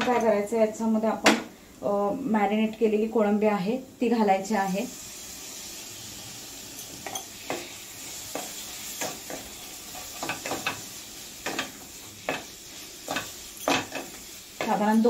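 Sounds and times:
prawns sizzling in hot oil: 4.0s - 15.0s
spatula scraping and knocking pan: 6.8s - 15.0s.

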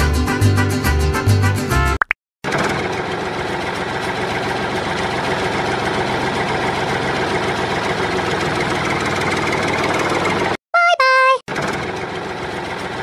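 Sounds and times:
tractor engine chugging: 2.5s - 10.6s, 11.5s - 13.0s.

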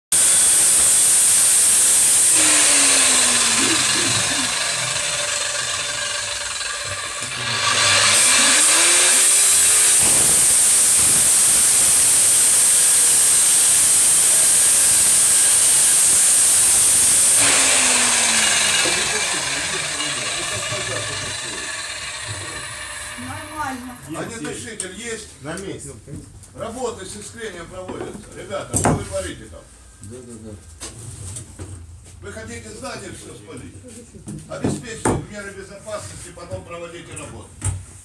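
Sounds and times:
angle grinder cutting steel: 0.1s - 24.4s.

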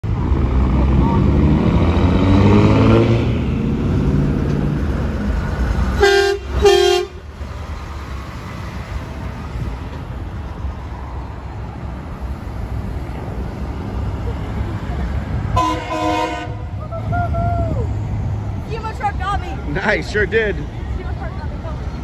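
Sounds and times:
rumble of passing trucks: 0.0s - 22.0s
truck engine accelerating: 0.0s - 22.0s
truck air horn blasts: 6.0s - 7.2s, 15.5s - 16.7s.

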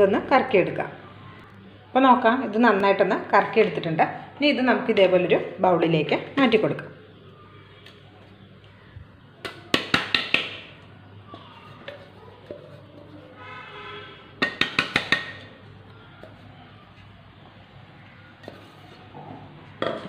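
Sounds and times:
sharp taps on steel jar: 14.4s - 15.5s.

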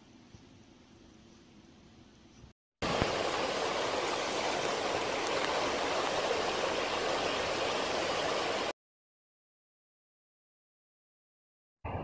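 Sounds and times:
floodwater rushing: 2.8s - 8.7s.

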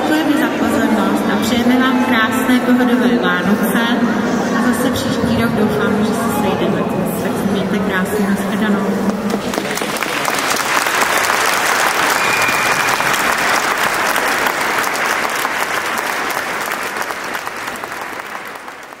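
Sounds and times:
audience applauding: 9.3s - 19.0s.

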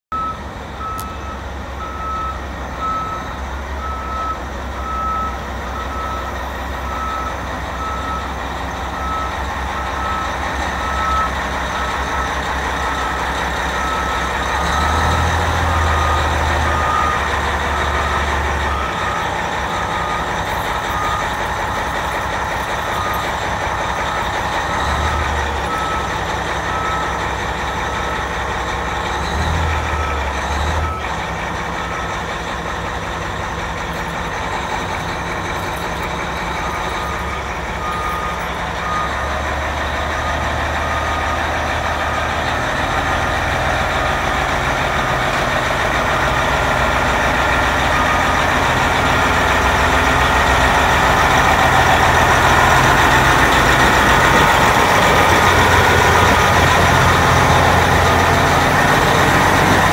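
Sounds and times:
truck diesel engine running: 0.1s - 59.9s
backup alarm beeping: 13.8s - 27.2s, 33.4s - 41.6s.

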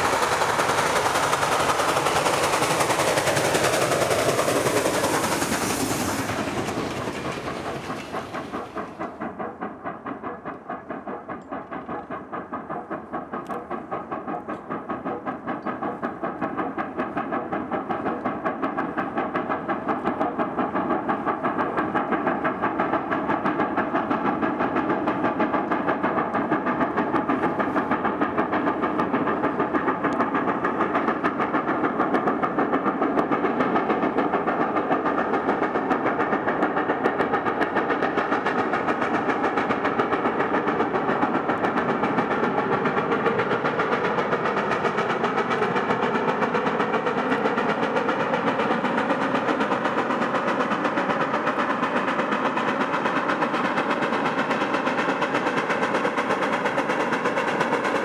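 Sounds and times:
steam locomotive exhaust beats: 0.0s - 58.0s.

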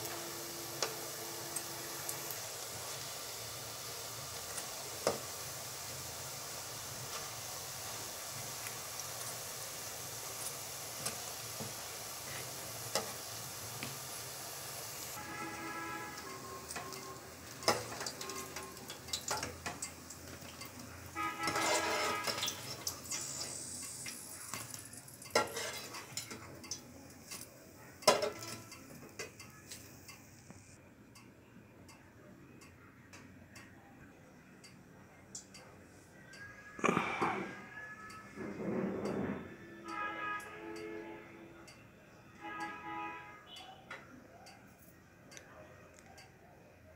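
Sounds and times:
hot oil sizzling: 0.0s - 30.8s
utensils and bowls clinking: 16.2s - 20.8s, 21.4s - 29.8s
metal spoon scraping a wok: 21.2s - 24.7s, 25.3s - 26.5s.

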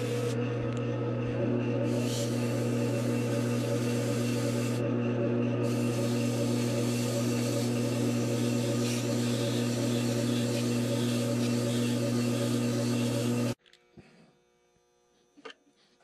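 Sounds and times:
sandpaper rubbing spinning foam: 0.0s - 0.4s, 1.6s - 4.8s, 5.6s - 13.6s
lathe motor hum: 0.0s - 13.6s.

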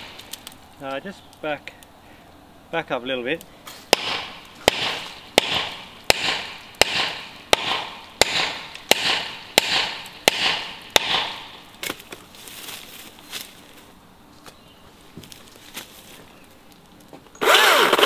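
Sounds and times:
axe chopping tree trunk: 3.8s - 12.1s.

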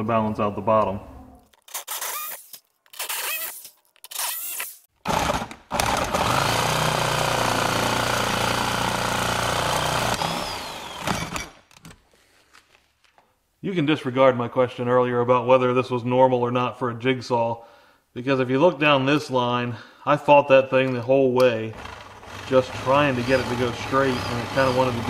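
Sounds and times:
jigsaw cutting metal sheet: 1.6s - 11.9s, 21.7s - 25.0s.

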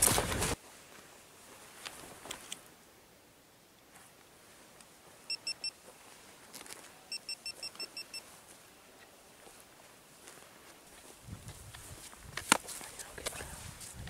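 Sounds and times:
short high electronic beeps: 7.1s - 8.2s.

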